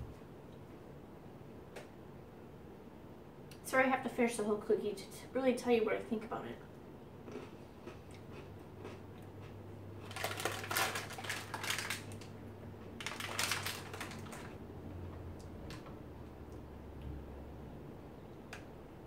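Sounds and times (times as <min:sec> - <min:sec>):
plastic package crinkling: 0:10.0 - 0:12.4, 0:13.0 - 0:14.6.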